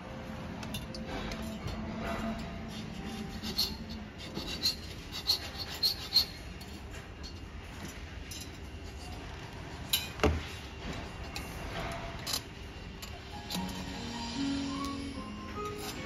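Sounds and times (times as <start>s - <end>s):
file scraping metal wire: 1.4s - 6.8s.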